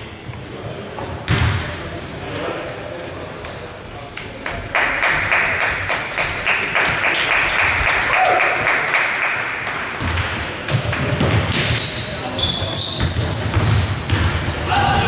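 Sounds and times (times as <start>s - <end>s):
short high squeaks: 1.0s - 4.1s
crowd clapping: 4.4s - 9.9s.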